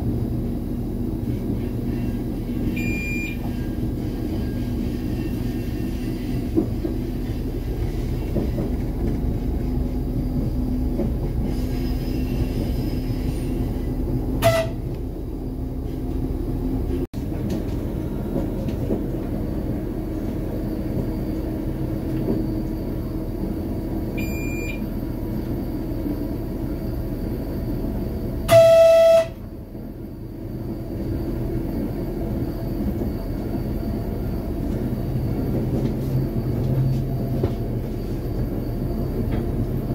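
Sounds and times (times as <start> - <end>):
train engine and wheel noise: 0.0 - 39.9
short beep in cab: 2.7 - 3.5, 24.2 - 24.9, 28.5 - 29.4
train horn: 14.4 - 15.0, 28.4 - 29.5.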